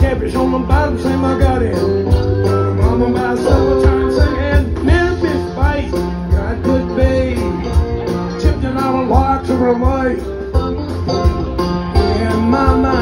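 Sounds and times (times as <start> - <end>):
bass: 0.0 - 13.0
drum beat: 0.0 - 13.0
plucked strings: 0.0 - 13.0.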